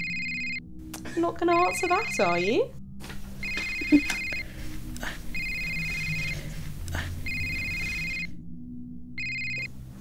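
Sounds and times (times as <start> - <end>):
smartphone two-tone ringing: 0.0 - 0.6, 1.5 - 2.5, 3.4 - 4.5, 5.4 - 6.4, 7.2 - 8.3, 9.2 - 9.7.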